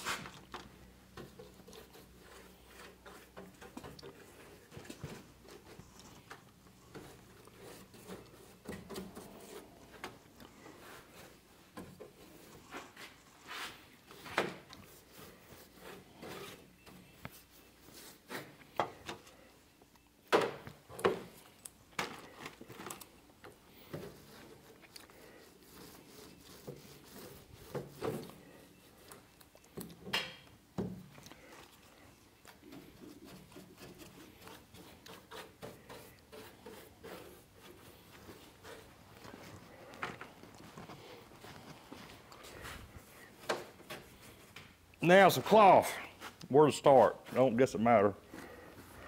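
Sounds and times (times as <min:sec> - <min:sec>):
applicator rubbing and dabbing: 0:23.8 - 0:29.7.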